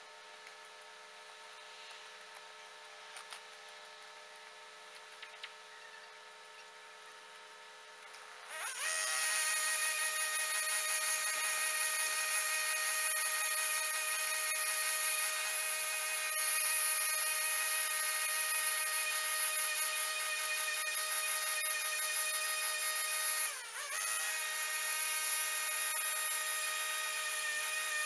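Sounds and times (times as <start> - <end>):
disc cutter cutting steel: 8.2 - 28.0.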